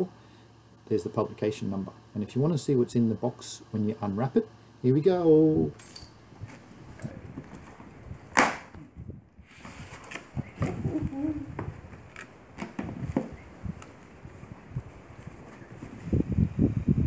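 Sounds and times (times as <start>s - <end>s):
cardboard flaps scraping and rustling: 6.4s - 8.7s, 9.4s - 11.0s, 11.6s - 16.1s
cardboard box snapping open: 8.3s - 8.8s.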